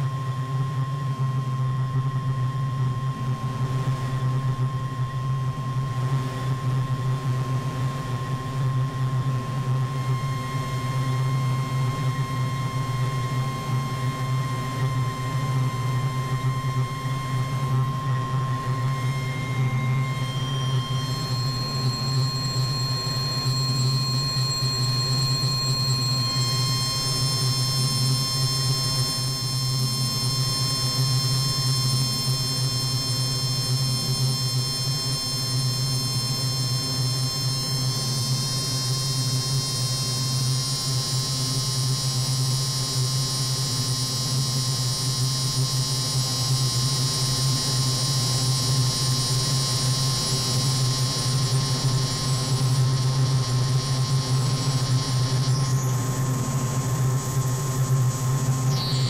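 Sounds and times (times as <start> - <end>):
high whistling synth tones: 18.4 - 32.0, 58.6 - 59.0.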